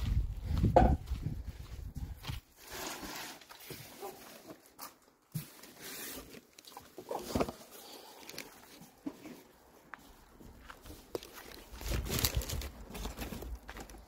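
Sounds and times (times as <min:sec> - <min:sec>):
cardboard box and papers rustling: 0:02.5 - 0:09.5, 0:10.8 - 0:14.0.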